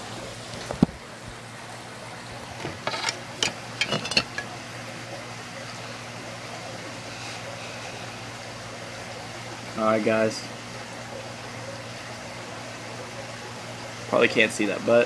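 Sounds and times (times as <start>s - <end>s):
steady low hum: 0.0s - 15.0s
glass clinks and clicks: 2.9s - 4.5s.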